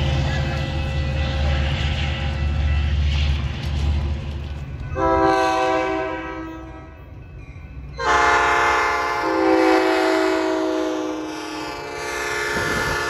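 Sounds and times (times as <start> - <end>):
train rumble: 0.0 - 13.0
locomotive air horn chord: 5.0 - 7.0, 8.0 - 13.0.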